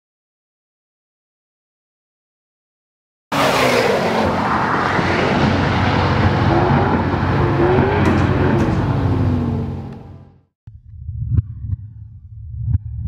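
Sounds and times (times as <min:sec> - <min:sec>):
car engine running hard: 0:03.3 - 0:10.5.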